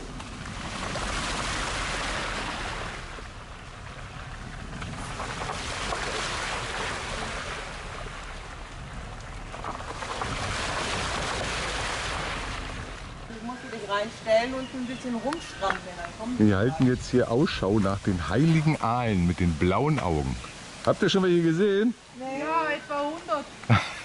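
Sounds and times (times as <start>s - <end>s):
wind rushing over microphone: 0.0s - 13.3s, 15.4s - 20.4s
car rumbling on dirt road: 0.0s - 13.7s.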